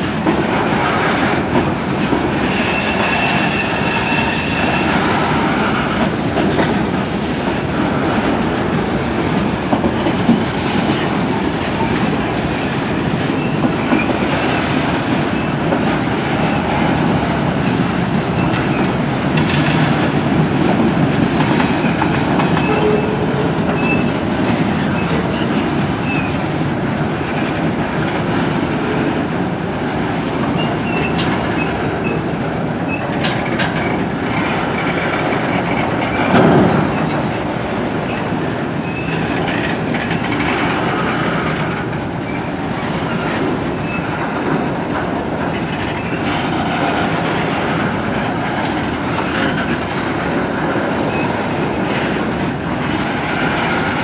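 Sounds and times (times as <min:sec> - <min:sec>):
train wheels clickety-clack on rail: 0:00.0 - 0:54.0
wheel squeals: 0:02.5 - 0:05.0.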